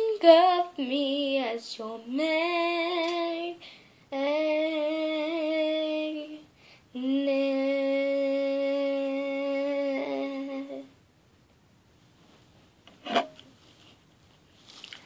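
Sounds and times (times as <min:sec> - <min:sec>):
girl singing long notes: 0:00.0 - 0:11.0.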